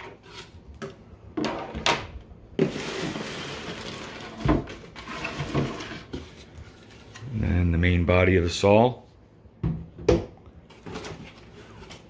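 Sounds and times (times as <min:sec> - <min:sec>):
cardboard rustling: 0:10.7 - 0:12.0.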